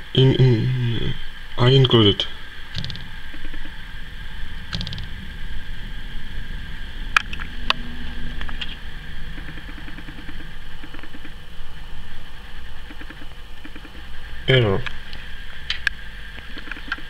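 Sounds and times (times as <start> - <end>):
low background rumble and hum: 0.0 - 17.0
sharp clicks: 2.7 - 3.8, 4.7 - 5.2, 8.4 - 11.4, 12.8 - 14.1, 15.7 - 17.0.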